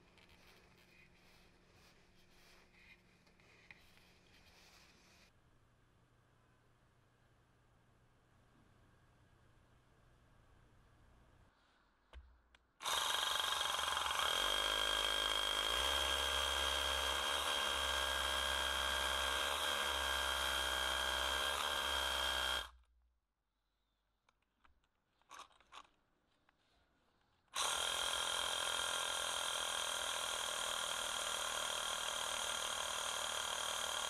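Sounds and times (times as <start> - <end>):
hammer drill whining into concrete: 12.8 - 22.7, 27.6 - 34.0.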